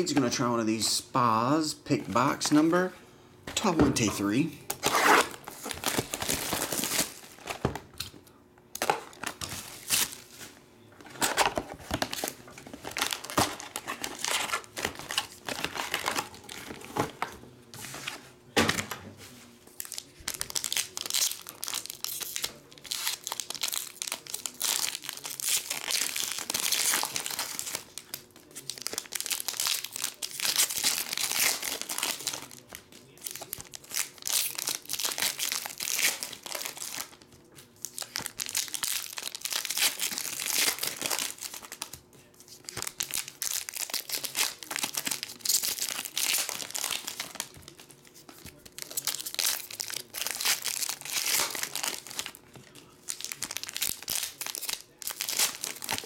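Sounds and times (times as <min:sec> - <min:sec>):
foil packs tearing and crinkling: 0:04.8 - 0:07.6, 0:11.2 - 0:17.2, 0:19.8 - 0:37.2, 0:37.8 - 0:42.0, 0:42.6 - 0:56.0
shrink wrap being peeled: 0:19.7 - 0:56.0.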